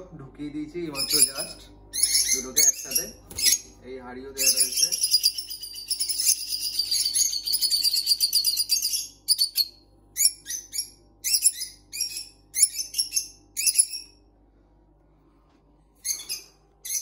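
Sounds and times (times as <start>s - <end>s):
shrill bird chirps: 0.9s - 3.8s, 4.4s - 14.3s, 16.0s - 17.0s
lovebird screeching: 1.0s - 3.7s, 4.4s - 14.2s, 16.0s - 17.0s.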